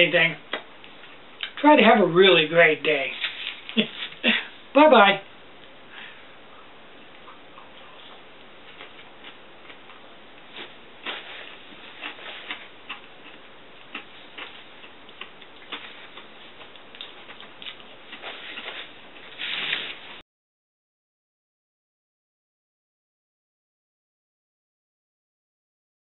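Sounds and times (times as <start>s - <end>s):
paper napkin rustle: 3.1s - 4.3s, 18.1s - 20.2s
chewing clicks and smacks: 12.0s - 18.7s.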